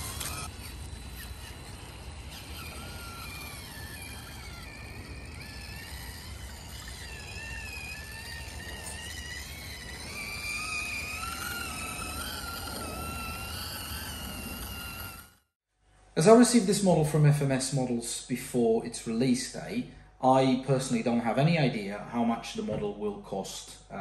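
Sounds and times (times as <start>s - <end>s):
toy truck motor whining: 0.0s - 15.6s.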